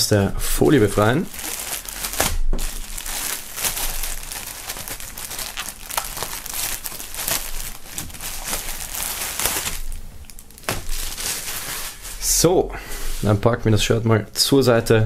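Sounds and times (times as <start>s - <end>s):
plastic wrapping crinkling: 0.6s - 12.4s.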